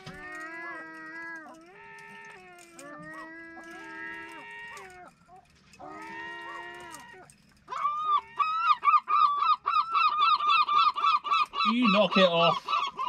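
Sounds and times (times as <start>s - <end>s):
gull wailing calls: 0.0s - 13.0s
gull yelping notes: 5.8s - 13.0s.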